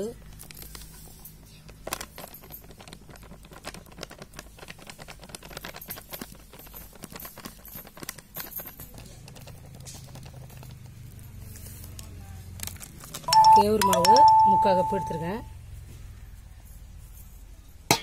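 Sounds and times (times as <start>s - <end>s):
packet crinkle: 11.6s - 13.3s.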